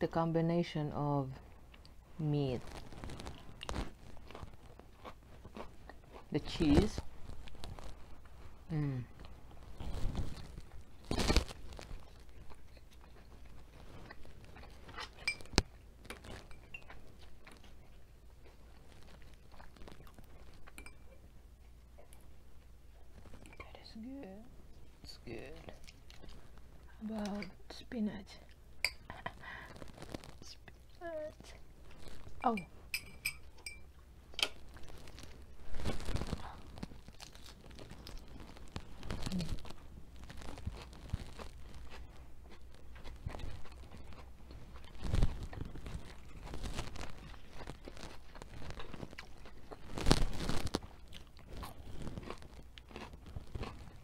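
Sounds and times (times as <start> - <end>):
crunchy chewing: 2.6 - 23.8, 25.3 - 27.0, 28.4 - 32.6, 33.4 - 54.0
spoon clicking on glass bowl: 32.5 - 33.8
lettuce wrap crunching bite: 34.3 - 54.0.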